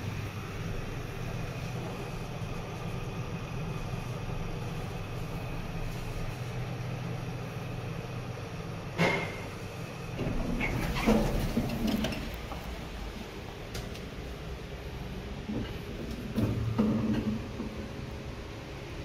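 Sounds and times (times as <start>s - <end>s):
elevator car arriving at floor: 7.2s - 19.0s.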